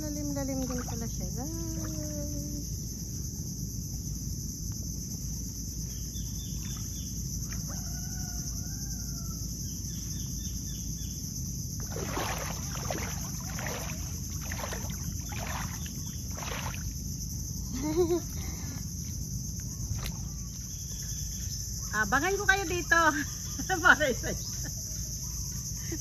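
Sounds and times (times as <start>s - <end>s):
insects buzzing: 0.0s - 26.0s
legs wading through water: 0.4s - 2.0s, 11.8s - 17.4s, 19.8s - 21.1s
faint rooster crowing: 7.4s - 9.9s.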